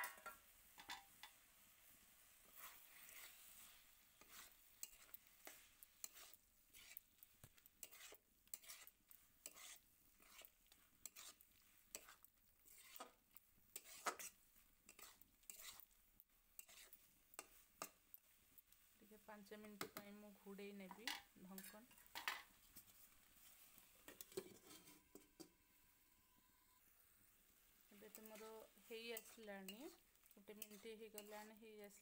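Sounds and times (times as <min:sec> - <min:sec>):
faint sizzle: 0:00.0 - 0:32.0
metal spatula scraping pan: 0:02.4 - 0:07.1, 0:07.8 - 0:15.9, 0:16.6 - 0:18.0, 0:23.5 - 0:25.4, 0:28.0 - 0:32.0.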